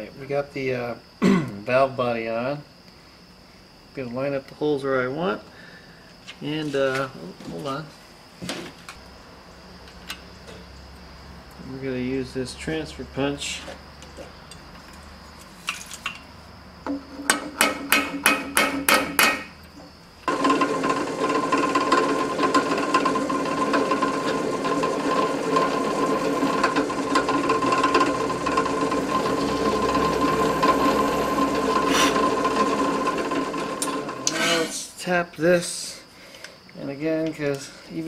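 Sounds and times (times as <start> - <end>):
hammer tapping metal punch: 16.9 - 19.5
drill press whining: 16.9 - 34.9.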